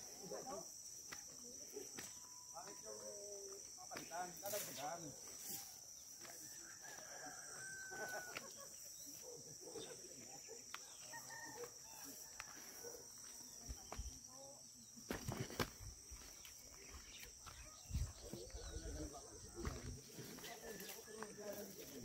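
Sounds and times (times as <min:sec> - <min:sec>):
distant rooster crowing: 0:06.2 - 0:08.8, 0:10.9 - 0:13.0.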